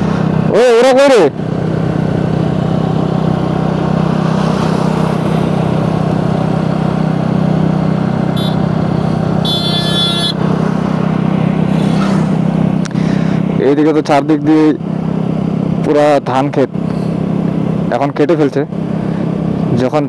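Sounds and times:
wind and tyre noise: 0.0 - 20.0
scooter engine running: 1.3 - 13.6
high-pitched horn beeps: 8.3 - 8.7, 9.4 - 10.4.

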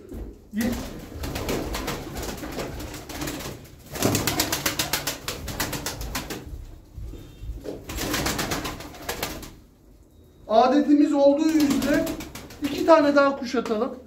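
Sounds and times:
pigeons flapping wings: 0.6 - 6.6, 7.6 - 9.6, 11.4 - 13.8.

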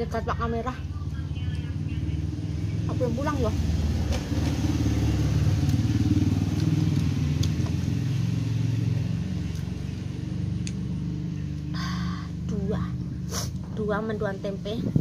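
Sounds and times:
engine rumbling: 0.0 - 15.0.

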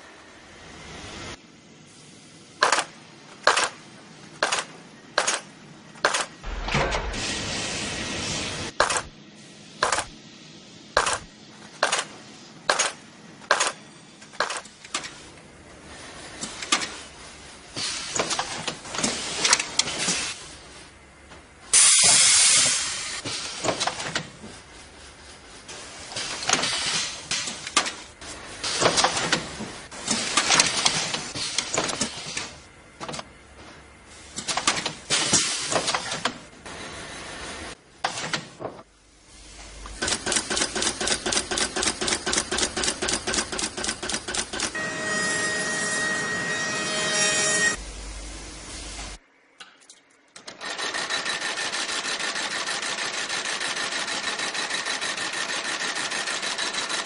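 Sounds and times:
machinery hissing in bursts: 6.4 - 11.2, 21.7 - 23.7, 35.0 - 36.0.

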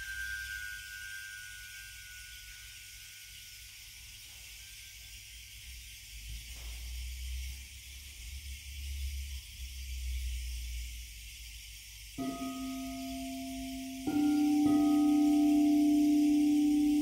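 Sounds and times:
singing bowl ringing: 0.0 - 5.4, 12.2 - 17.0
steady hiss: 0.0 - 17.0.

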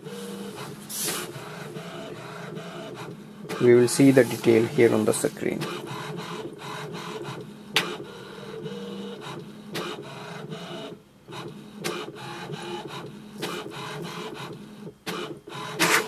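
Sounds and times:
printer mechanism whirring: 0.0 - 16.0
printer sharp click: 5.4 - 8.0, 11.8 - 16.0.

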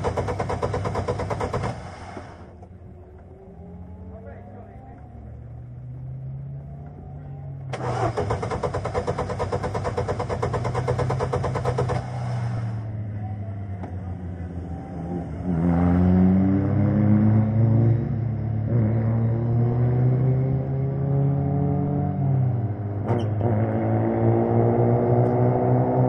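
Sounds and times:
electric starter cranking engine: 7.7 - 12.8
engine revving: 7.7 - 26.0.

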